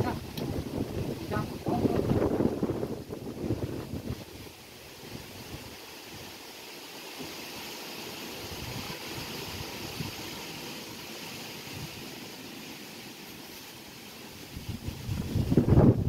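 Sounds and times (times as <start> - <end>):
wind buffeting microphone: 0.0 - 5.8, 14.5 - 16.0
wind gusts rushing through trees: 0.0 - 16.0.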